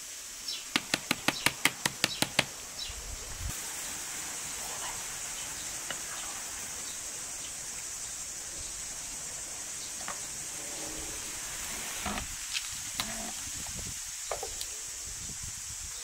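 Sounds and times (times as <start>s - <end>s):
high-pitched outdoor hiss: 0.0s - 16.0s
wooden spoon tapping metal pot: 0.7s - 2.5s.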